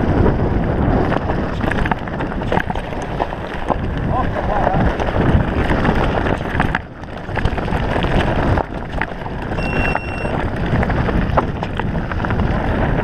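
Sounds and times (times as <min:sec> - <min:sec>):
bike rattling: 0:00.0 - 0:13.0
wind buffeting microphone: 0:00.0 - 0:13.0
tyres crunching over stones: 0:01.0 - 0:09.6
short high beep: 0:09.6 - 0:10.4.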